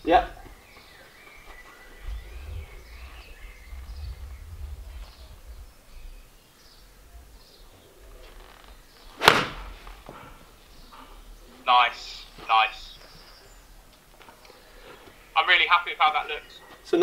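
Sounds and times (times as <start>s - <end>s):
faint bird chirps: 0.0s - 15.5s
low uneven rumble: 1.5s - 15.3s.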